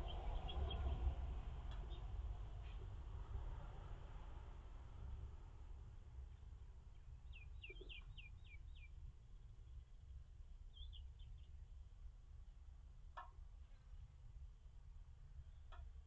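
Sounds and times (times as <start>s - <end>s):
bird chirping: 0.0s - 2.8s, 6.9s - 9.0s, 10.7s - 11.6s
low steady hum: 0.0s - 16.0s.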